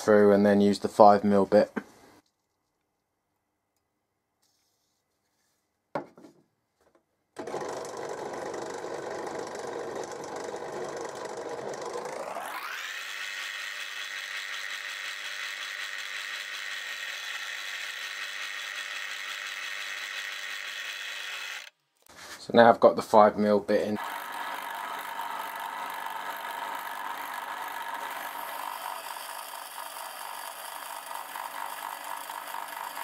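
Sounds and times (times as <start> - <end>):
drill press motor whine: 7.4 - 21.7, 24.0 - 33.0.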